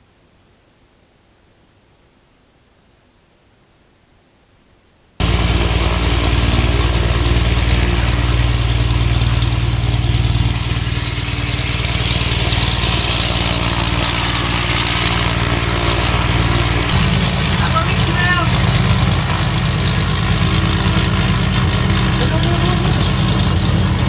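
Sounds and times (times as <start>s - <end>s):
propeller plane engine throbbing: 5.2s - 24.0s.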